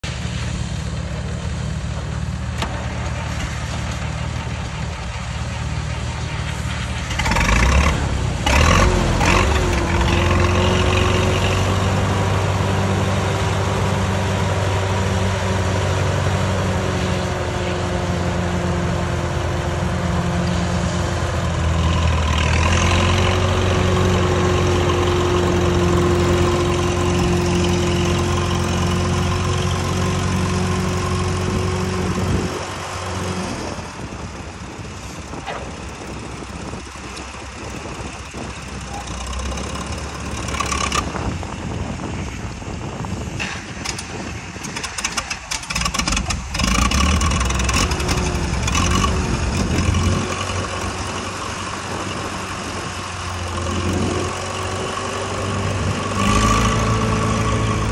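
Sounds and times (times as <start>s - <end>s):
tractor engine running: 0.0s - 57.9s
steady whine: 23.3s - 57.9s.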